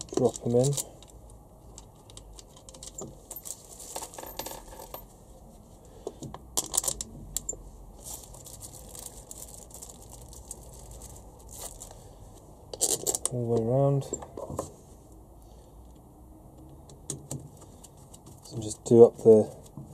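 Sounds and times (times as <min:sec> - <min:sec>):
small metal screws clinking: 0:00.0 - 0:05.1, 0:06.6 - 0:08.4, 0:12.7 - 0:14.2.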